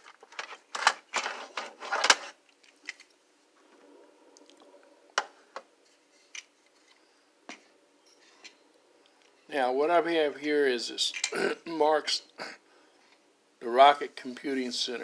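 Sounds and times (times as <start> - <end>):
plastic toy train clicks and rattles: 0.0 - 3.1.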